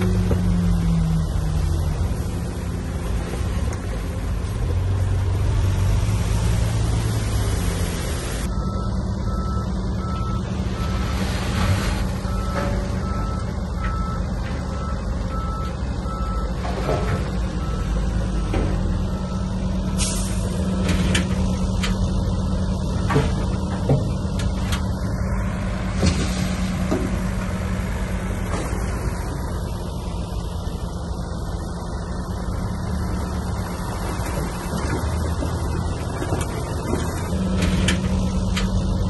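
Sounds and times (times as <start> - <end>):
diesel machinery running: 0.0 - 39.0
reversing alarm beeping: 8.5 - 11.5, 12.2 - 16.6, 17.6 - 19.6.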